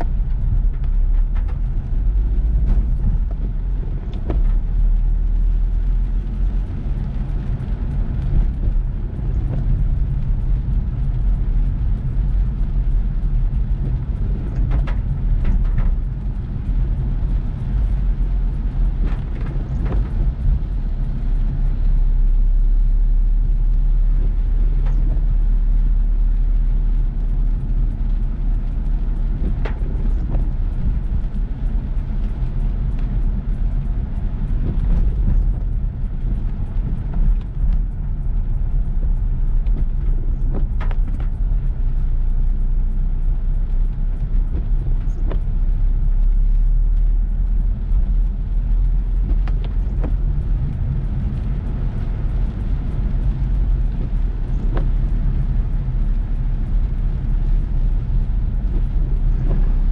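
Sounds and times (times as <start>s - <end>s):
car driving in heavy rain: 0.0s - 59.9s.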